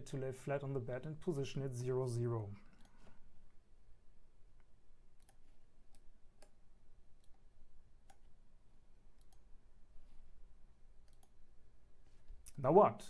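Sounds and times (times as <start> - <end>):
low room hum: 0.0 - 13.0
computer mouse clicking: 2.7 - 3.1, 5.2 - 6.6, 7.2 - 8.3, 9.2 - 9.5, 11.0 - 11.4.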